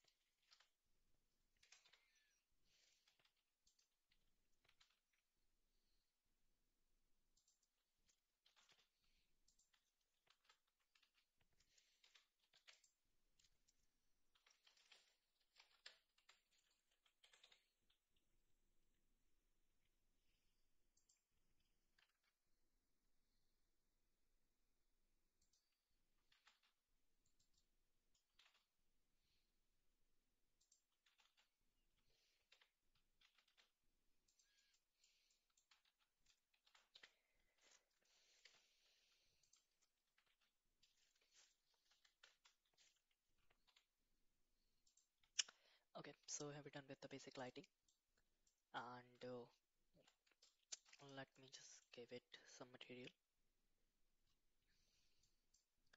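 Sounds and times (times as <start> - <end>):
computer keyboard and mouse clicks: 1.6 - 5.3, 7.3 - 18.0, 25.4 - 29.4, 30.6 - 43.9.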